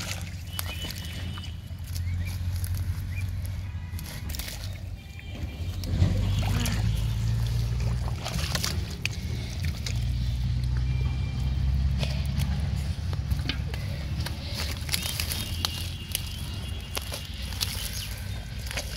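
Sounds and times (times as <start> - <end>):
hands squelching in mud: 0.0 - 18.9
low rumble: 5.5 - 15.3.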